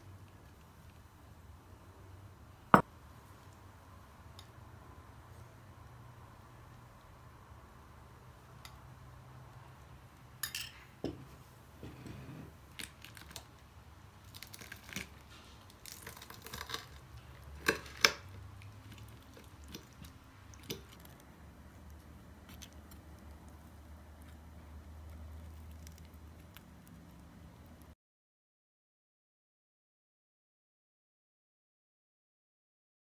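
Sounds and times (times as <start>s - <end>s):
metal spoon clinking on ceramic: 10.4s - 10.8s.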